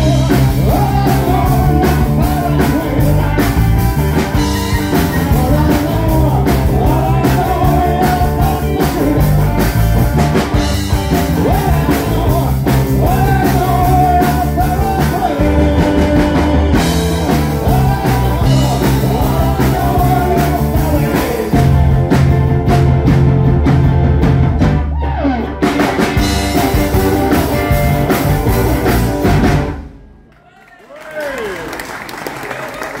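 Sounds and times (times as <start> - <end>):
man singing: 0.0 - 22.1
electric guitars: 0.0 - 30.0
drum kit: 0.0 - 30.3.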